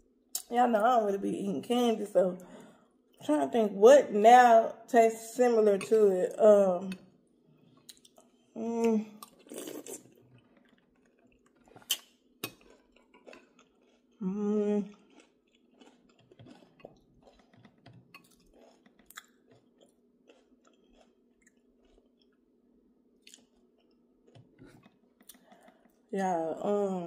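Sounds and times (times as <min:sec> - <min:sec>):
person chewing food: 0:07.3 - 0:08.5, 0:09.1 - 0:22.6, 0:23.2 - 0:26.0.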